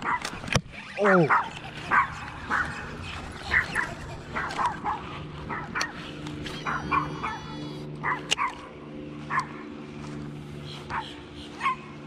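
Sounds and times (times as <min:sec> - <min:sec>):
dog barking: 0:00.0 - 0:00.3, 0:01.0 - 0:06.0, 0:06.6 - 0:08.7, 0:09.3 - 0:09.6, 0:10.9 - 0:11.9
steady low hum: 0:00.0 - 0:12.0.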